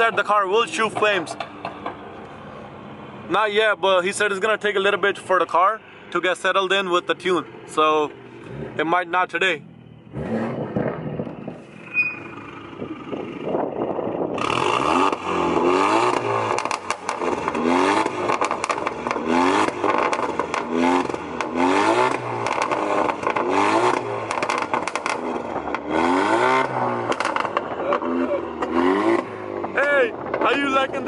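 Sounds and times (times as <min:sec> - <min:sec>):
exhaust pops and crackles: 0:00.0 - 0:02.4, 0:10.4 - 0:11.8, 0:12.8 - 0:31.0
car engine revving: 0:00.0 - 0:31.0.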